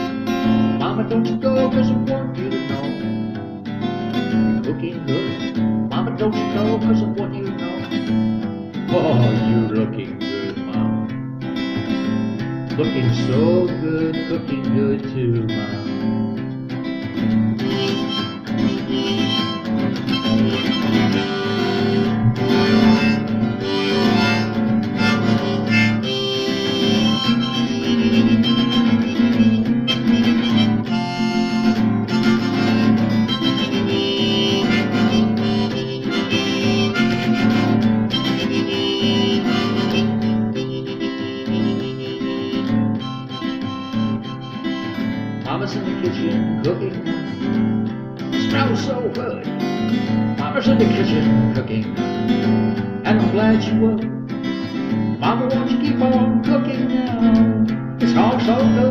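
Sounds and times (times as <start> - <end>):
harmonica solo: 0.0 - 14.6, 15.4 - 53.9
strummed acoustic guitar: 0.0 - 58.9.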